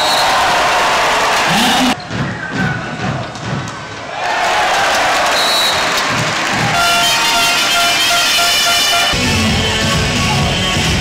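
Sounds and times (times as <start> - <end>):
crowd cheering and shouting: 0.0 - 8.1.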